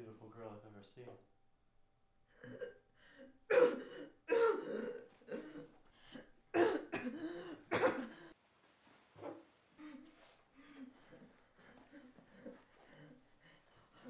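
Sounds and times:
person coughing: 3.5s - 8.4s.

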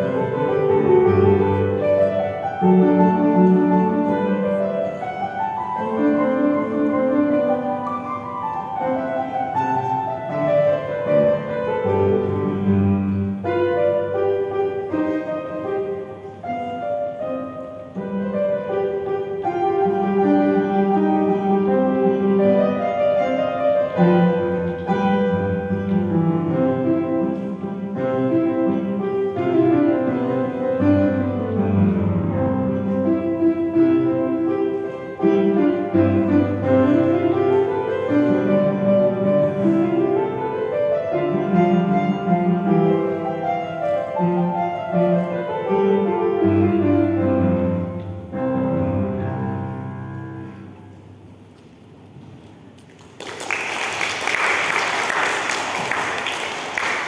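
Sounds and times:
piano playing: 0.0s - 57.0s
audience applause: 52.8s - 57.0s.

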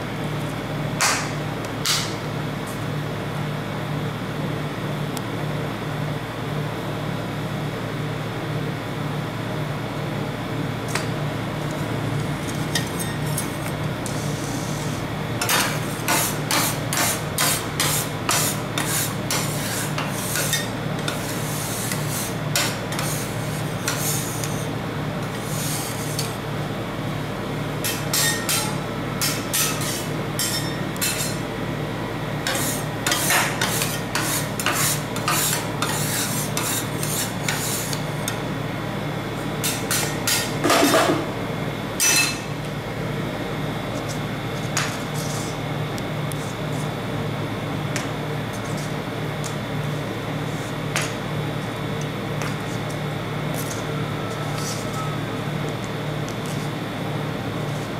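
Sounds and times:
spatulas scraping cold plate: 14.1s - 24.7s, 25.3s - 26.3s, 27.8s - 31.4s, 32.4s - 38.0s.

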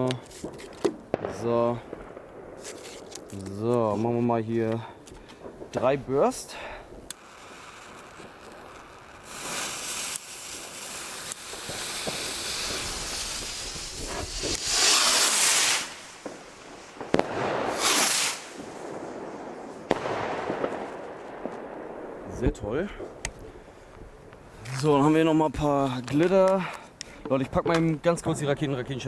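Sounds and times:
rocket bursts cracking: 0.0s - 26.2s
rockets whooshing: 0.0s - 26.2s
firework fuse hissing: 2.5s - 3.6s, 5.5s - 21.0s.

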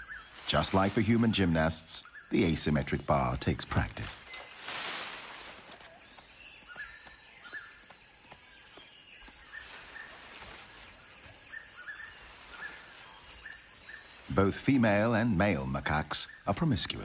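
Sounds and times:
high bird chirps: 4.2s - 15.5s.

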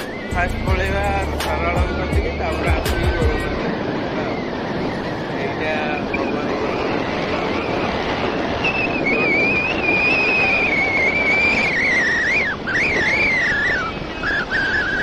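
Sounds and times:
high wavering whistle tone: 0.0s - 6.3s, 7.4s - 15.0s
vehicle road and wind noise: 0.0s - 15.0s.

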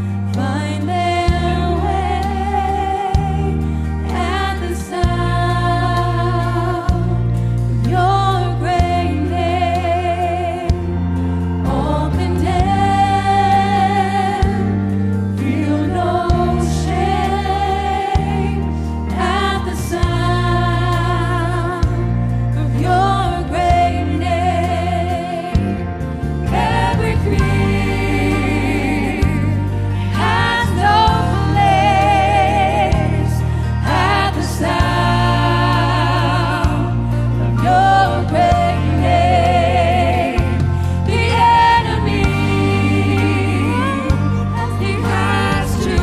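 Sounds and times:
woman singing gospel: 0.0s - 25.9s, 26.5s - 46.0s
backing singers: 0.0s - 46.0s
band playing sustained chords: 0.0s - 46.0s.

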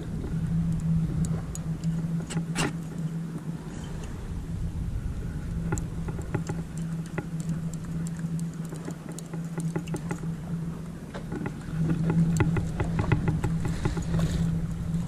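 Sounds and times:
low engine hum: 0.0s - 15.0s
light clicks and taps: 5.7s - 10.3s, 11.1s - 14.8s.

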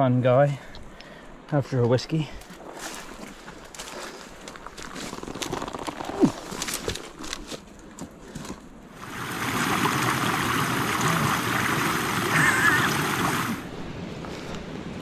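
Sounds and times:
footsteps in undergrowth: 2.3s - 8.8s
plants brushing: 2.4s - 8.6s
stream rushing over stones: 8.9s - 13.9s.

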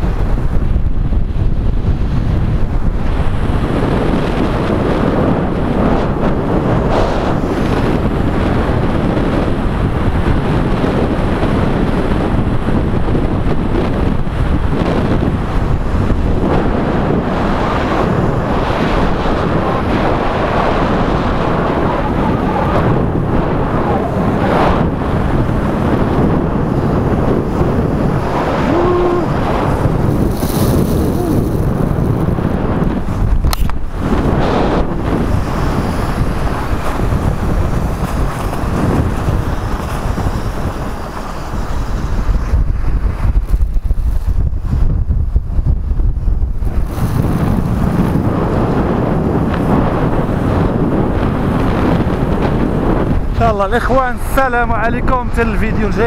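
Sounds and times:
wind on microphone: 0.0s - 56.0s
skis hissing on snow: 30.1s - 31.8s.

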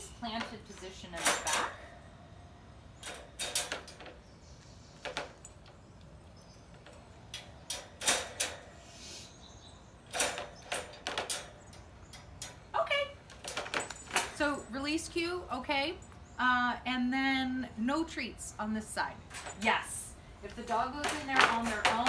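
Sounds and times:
wire crate door rattling: 0.4s - 1.9s, 3.0s - 4.3s, 6.7s - 8.8s, 10.1s - 14.5s, 20.6s - 22.0s.

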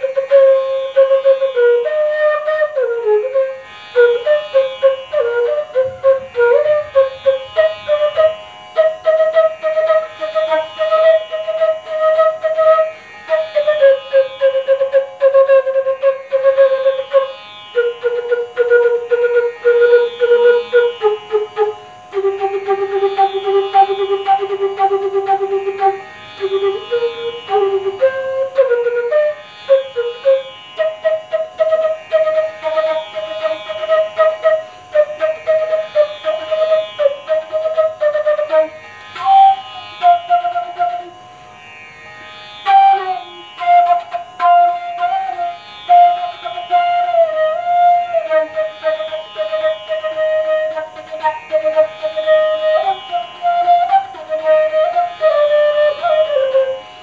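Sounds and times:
bamboo flute playing fast notes: 0.0s - 41.2s, 42.6s - 56.8s.

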